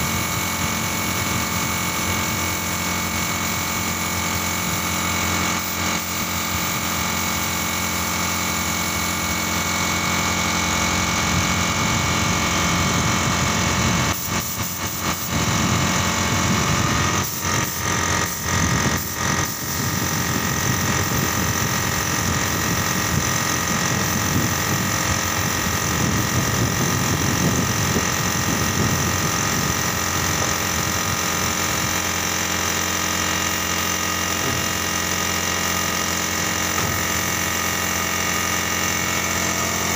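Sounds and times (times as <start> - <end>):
air compressor running: 0.0 - 39.9
paint spray gun hissing: 0.1 - 9.2, 16.4 - 39.9.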